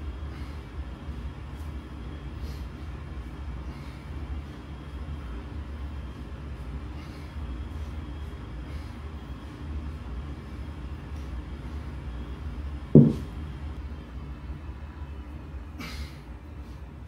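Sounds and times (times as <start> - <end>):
kettlebell thud on concrete: 13.0 - 13.3.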